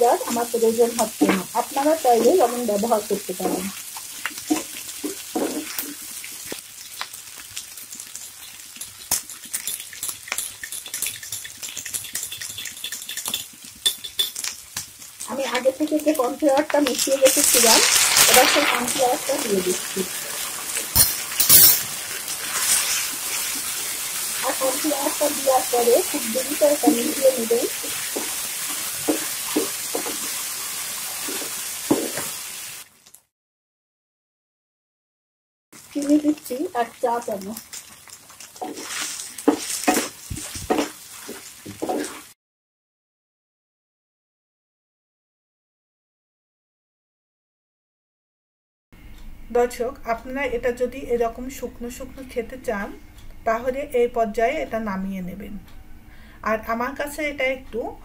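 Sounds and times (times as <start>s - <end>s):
food sizzling in a frying pan: 0.0s - 33.3s, 35.8s - 42.4s
wooden spatula stirring pan: 0.2s - 6.1s, 8.7s - 14.4s, 15.5s - 32.5s, 37.2s - 42.3s.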